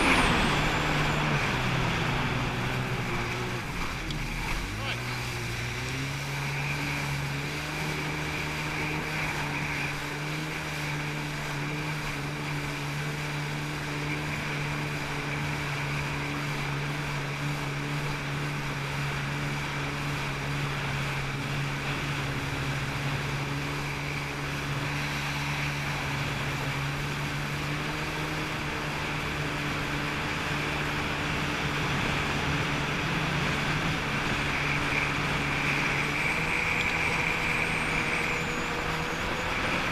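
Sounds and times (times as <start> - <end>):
jet ski engine droning: 0.0 - 39.9
wind and water rushing: 0.0 - 39.9.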